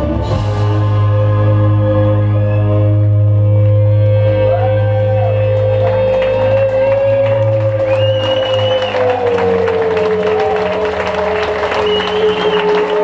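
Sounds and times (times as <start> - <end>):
rock band sustained chord: 0.0 - 8.1
low bass drone: 0.0 - 13.0.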